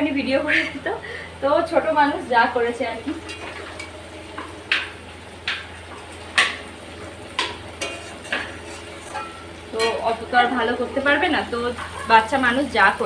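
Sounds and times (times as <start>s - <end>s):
faint frying: 0.0s - 13.0s
metal spatula scraping a pan: 3.2s - 3.9s, 7.4s - 10.2s.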